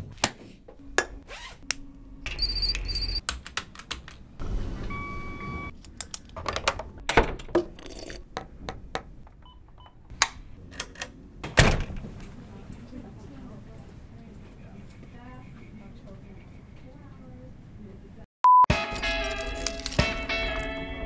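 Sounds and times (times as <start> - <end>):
short beeps: 18.4 - 18.7.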